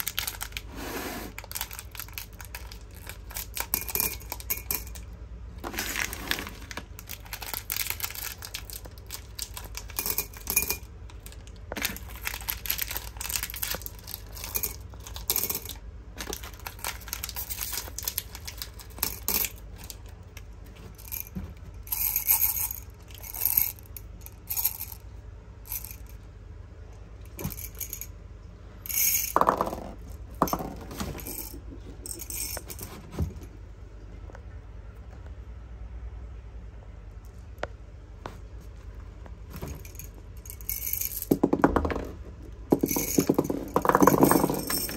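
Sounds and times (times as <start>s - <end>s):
hard candies clattering: 0.0s - 0.7s, 1.3s - 23.9s, 39.6s - 44.9s.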